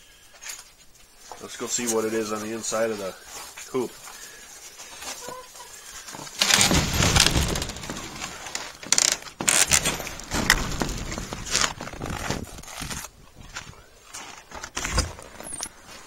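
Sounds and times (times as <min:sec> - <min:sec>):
knocks and rattles: 0:06.3 - 0:12.7.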